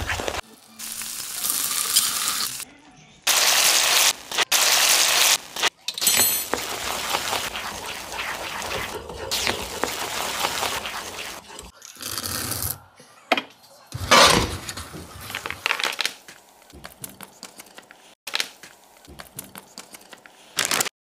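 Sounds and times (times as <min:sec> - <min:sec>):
baking paper rustling: 0:00.0 - 0:00.4, 0:06.4 - 0:11.7, 0:14.5 - 0:20.9
wooden spatula scraping pan: 0:06.4 - 0:11.7.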